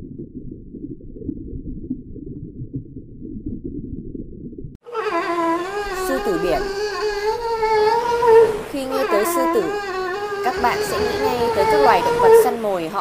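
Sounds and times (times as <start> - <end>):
muffled underwater rumble: 0.0 - 4.8
sea lion pup calling: 4.9 - 12.8.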